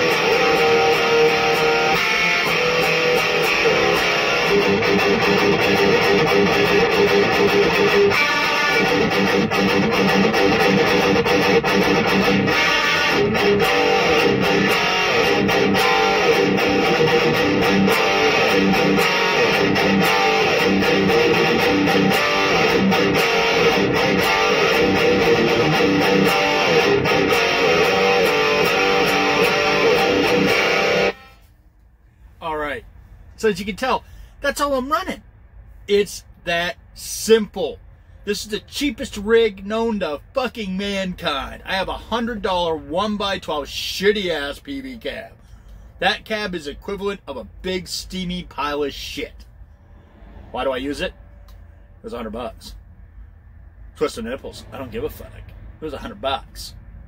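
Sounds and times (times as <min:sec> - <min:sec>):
distorted electric guitar riffing: 0:00.0 - 0:31.5.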